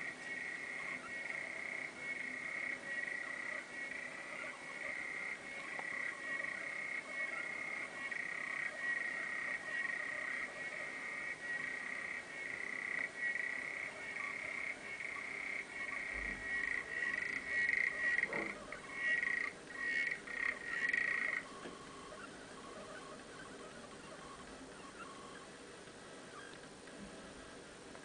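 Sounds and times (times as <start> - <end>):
frog clicking trill underwater: 0.0 - 22.0.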